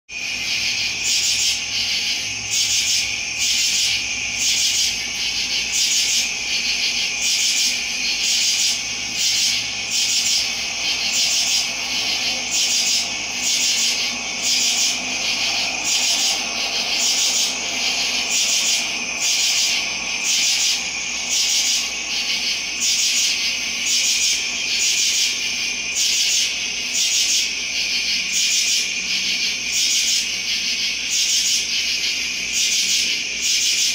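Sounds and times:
steady high hum: 0.1 - 33.9.

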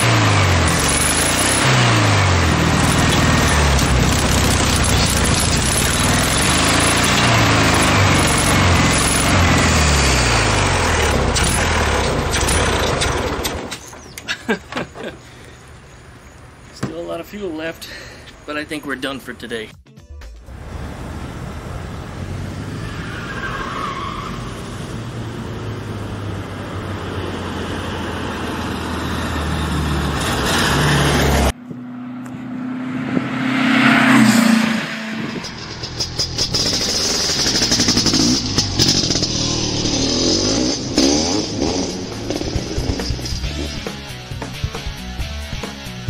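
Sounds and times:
car engine driving past: 20.5 - 36.0.

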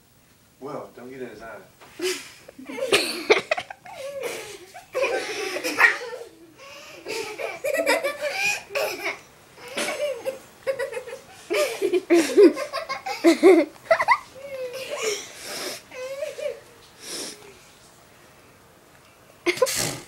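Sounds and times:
people giggling: 2.0 - 9.2, 9.8 - 15.2.

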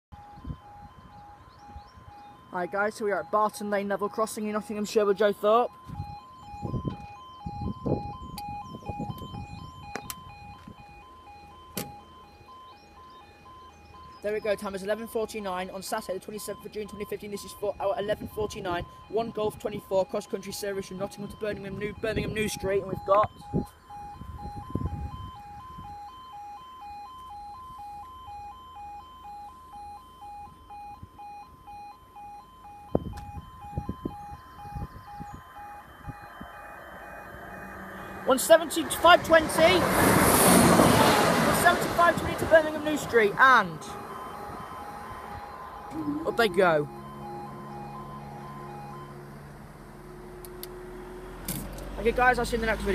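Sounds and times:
level crossing alarm two tones: 0.1 - 49.5
sharp clicks: 9.9 - 10.2.

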